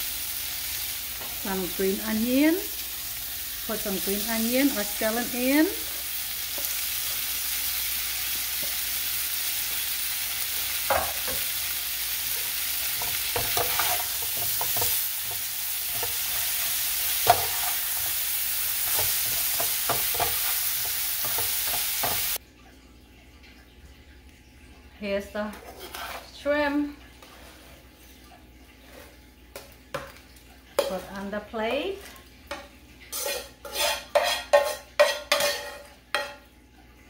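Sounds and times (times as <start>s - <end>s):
food sizzling in hot oil: 0.0s - 22.4s, 28.8s - 36.4s
metal spoon scraping a pan: 12.3s - 22.4s, 25.4s - 26.6s, 27.2s - 28.2s, 30.8s - 36.4s.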